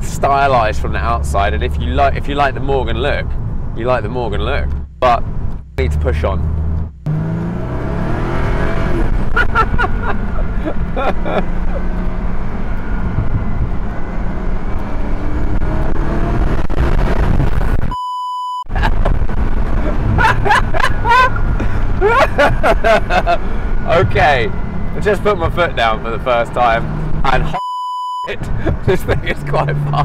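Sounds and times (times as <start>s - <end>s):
car engine under full throttle: 0.0s - 18.0s, 18.7s - 27.6s, 28.3s - 30.0s
wind rush: 12.1s - 18.0s
censor bleep: 17.9s - 18.7s, 27.6s - 28.3s.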